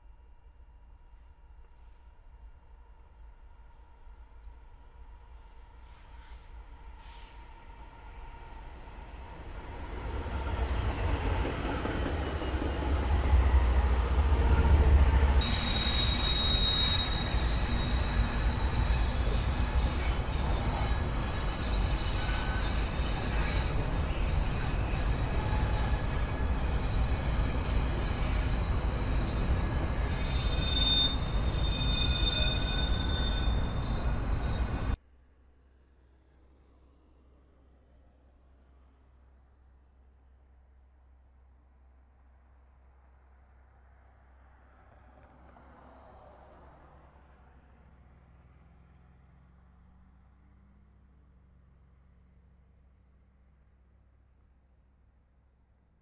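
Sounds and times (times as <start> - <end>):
freight train rolling past: 5.0 - 35.0
steel wheels squealing: 10.2 - 35.0.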